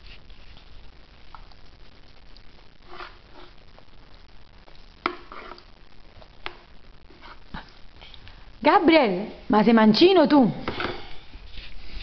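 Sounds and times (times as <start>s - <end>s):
metal spoon scraping plastic bowl: 5.1s - 5.7s.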